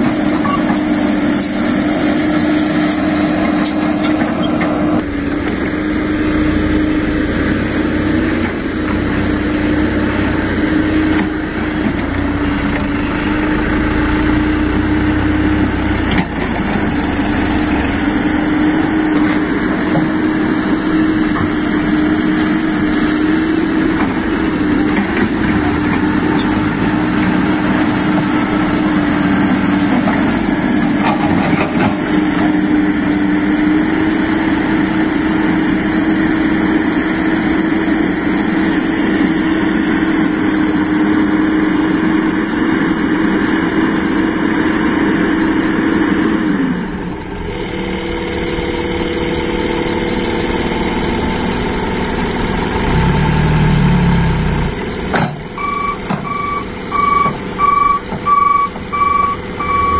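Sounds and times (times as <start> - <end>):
diesel engine droning: 0.0 - 59.9
hydraulic hoist running: 46.4 - 59.9.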